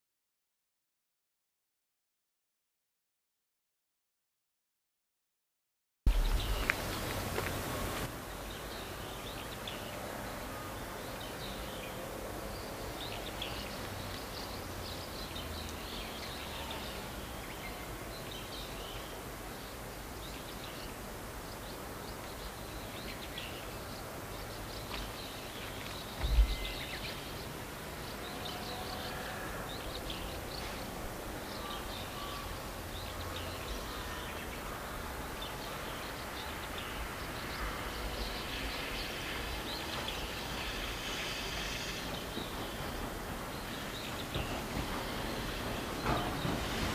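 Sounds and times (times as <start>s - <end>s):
low thump: 6.1s - 7.0s, 26.2s - 26.8s
light low rumble: 6.1s - 8.1s, 26.2s - 27.4s
small birds chirping: 6.1s - 46.9s.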